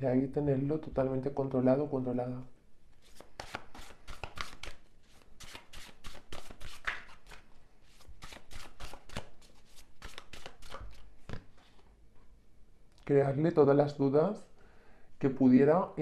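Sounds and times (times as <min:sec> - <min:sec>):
cards being shuffled: 0:03.0 - 0:11.8.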